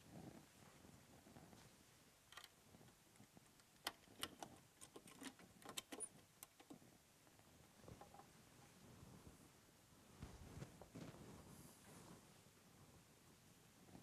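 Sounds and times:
metal clicks and clinks: 3.8 - 6.7.

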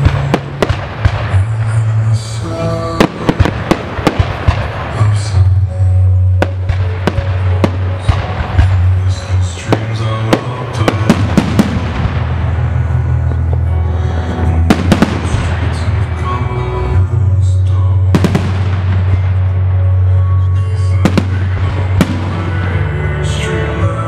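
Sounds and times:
music over loudspeakers: 0.0 - 24.0.

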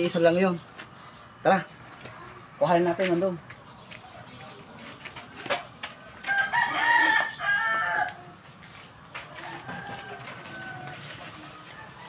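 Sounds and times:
rooster crowing: 6.1 - 8.4, 9.3 - 12.0.

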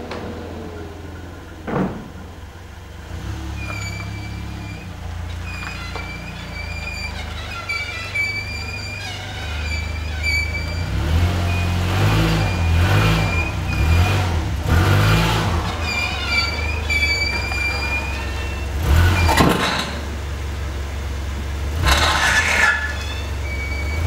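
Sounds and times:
car underside scraping: 0.0 - 20.7, 21.3 - 24.0
car engine revving: 0.0 - 24.0.

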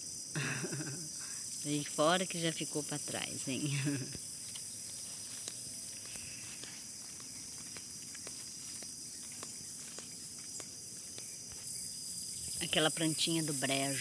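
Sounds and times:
insects droning: 0.0 - 14.0
footsteps on dirt road: 4.1 - 12.1.

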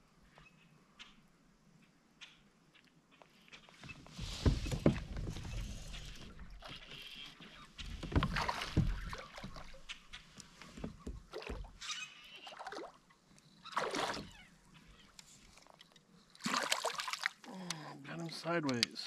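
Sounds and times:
fish splashing at surface: 13.7 - 14.3, 16.4 - 17.4.

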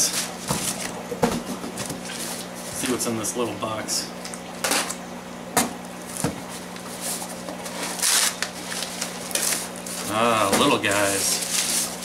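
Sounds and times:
cardboard box scraping and crackling: 10.8 - 12.0.

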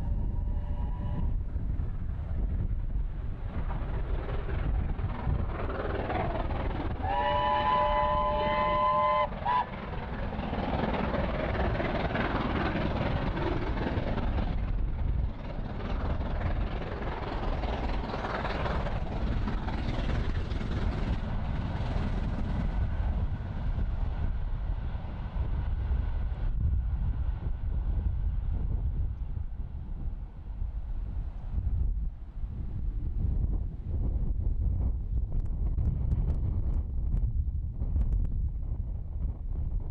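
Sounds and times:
distant train working: 0.0 - 32.9
wind rumble on microphone: 0.0 - 39.9
steam locomotive whistle: 0.2 - 1.3, 7.0 - 9.8.

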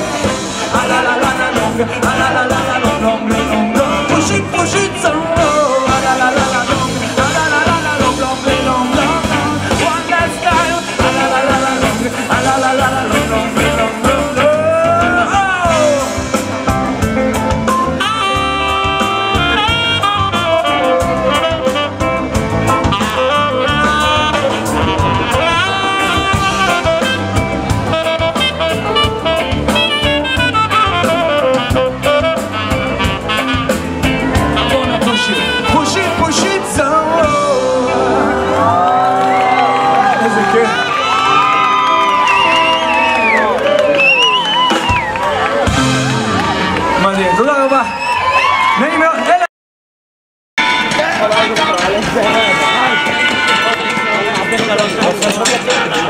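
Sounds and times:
drum kit beat: 0.0 - 40.2, 41.7 - 47.0, 50.6 - 56.0
horn section playing: 0.0 - 47.5, 50.6 - 56.0
keyboard: 0.0 - 49.4, 50.6 - 56.0.

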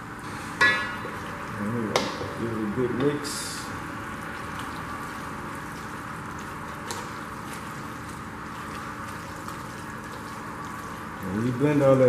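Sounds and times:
wet stirring of meat in sauce: 3.7 - 11.8.

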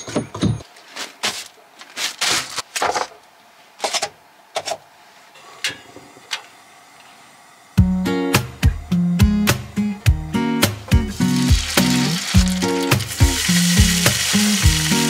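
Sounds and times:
plastic bags rustling: 0.7 - 2.8, 11.1 - 15.0
guitar music: 7.8 - 15.0.

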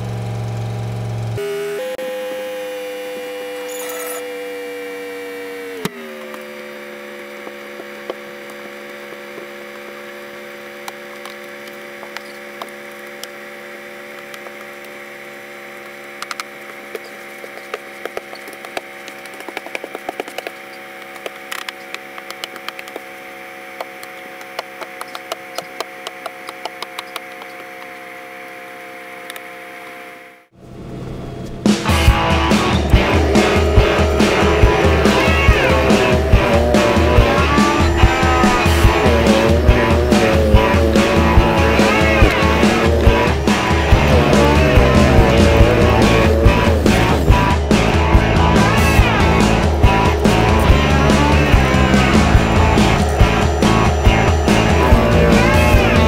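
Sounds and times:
truck engine idling: 30.5 - 56.0.

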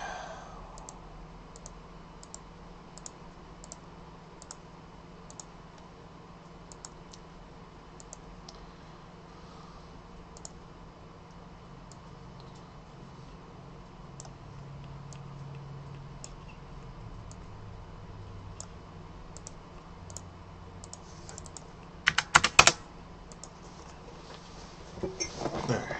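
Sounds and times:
faint low hum: 0.0 - 25.9
computer mouse clicking: 0.8 - 2.4, 3.0 - 3.8, 4.4 - 4.6, 5.3 - 5.9, 6.7 - 7.3, 8.0 - 8.6, 10.3 - 10.6, 14.2 - 16.5, 19.3 - 23.6.

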